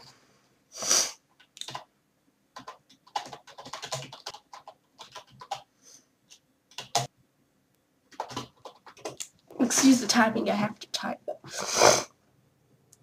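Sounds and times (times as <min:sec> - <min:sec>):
short breathy hiss: 0:00.2 - 0:01.2
keyboard typing clicks: 0:01.4 - 0:01.9, 0:06.3 - 0:07.1.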